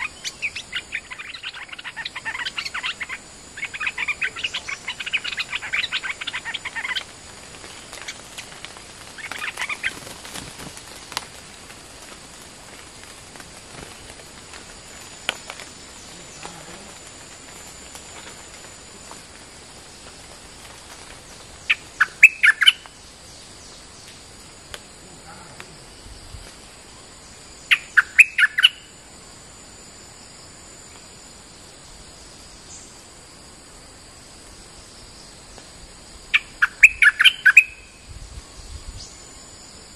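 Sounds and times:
bird singing bubbly phrases: 0:00.0 - 0:07.0, 0:21.7 - 0:22.8, 0:27.7 - 0:28.8, 0:36.4 - 0:38.0.

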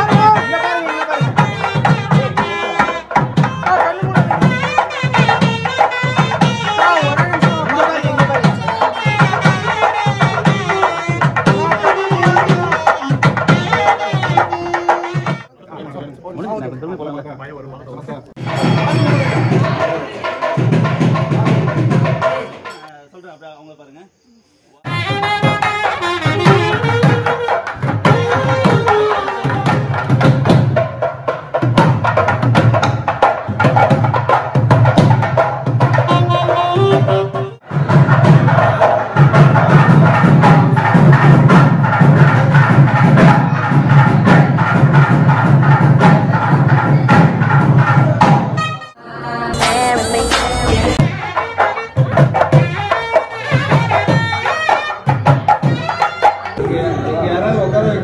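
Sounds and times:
saxophone melody: 0:00.0 - 0:15.5, 0:24.8 - 0:30.2, 0:35.8 - 0:37.7, 0:48.5 - 0:56.6
steady drum beat: 0:00.0 - 0:15.5, 0:18.4 - 0:22.9, 0:24.8 - 0:49.0, 0:49.6 - 0:56.6.

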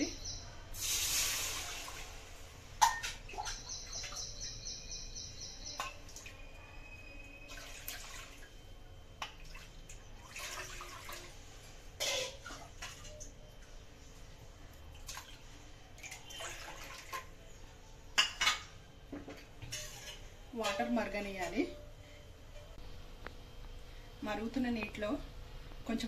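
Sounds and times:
water pouring into metal pot: 0:00.8 - 0:02.2, 0:07.4 - 0:08.5, 0:09.3 - 0:11.4.

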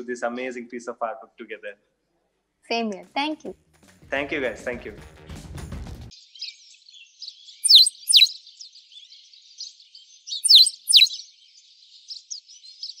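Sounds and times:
small bird chirps: 0:06.1 - 0:13.0
downward-sliding bird whistles: 0:07.6 - 0:08.3, 0:10.4 - 0:11.2.

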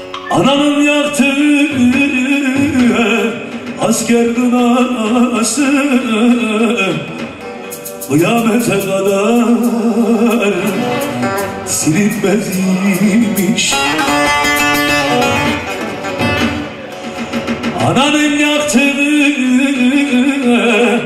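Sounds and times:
amplified long-necked lute: 0:00.0 - 0:18.0
man singing long wavering notes: 0:08.1 - 0:14.4.

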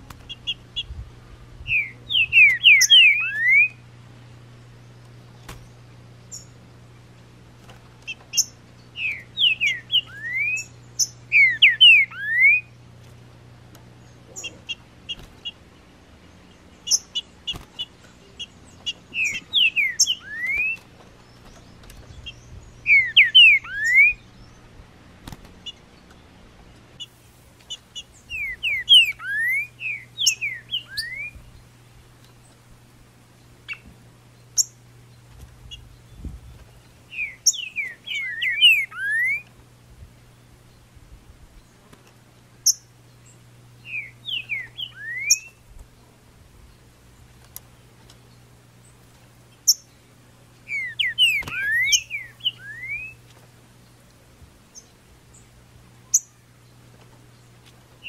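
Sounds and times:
high bird chip notes: 0:00.0 - 0:07.4, 0:08.0 - 0:41.0, 0:41.6 - 0:54.1
bird whistled song: 0:01.6 - 0:03.8, 0:06.2 - 0:06.6, 0:08.1 - 0:12.7, 0:16.8 - 0:24.6, 0:27.7 - 0:31.6, 0:37.1 - 0:39.5, 0:42.6 - 0:45.6, 0:49.6 - 0:50.0, 0:50.6 - 0:53.2, 0:56.1 - 0:56.4.

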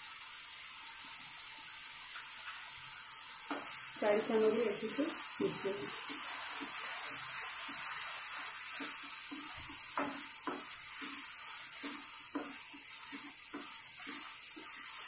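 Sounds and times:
oil sizzling: 0:00.0 - 0:15.0
spatula scraping thick gravy: 0:05.9 - 0:15.0.

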